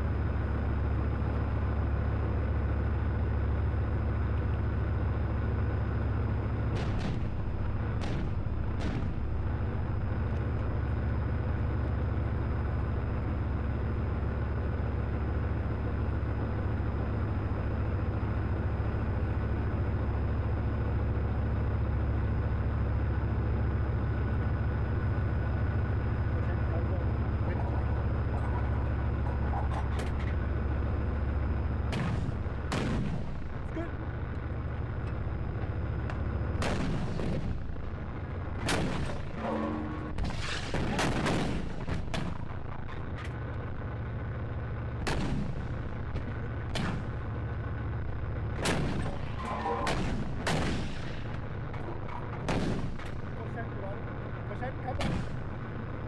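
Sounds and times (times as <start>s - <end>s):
tank engine running: 0.0s - 56.0s
tank gun firing: 6.6s - 10.3s, 29.0s - 33.7s, 36.5s - 42.9s, 45.0s - 47.4s, 48.4s - 53.6s, 54.8s - 55.8s.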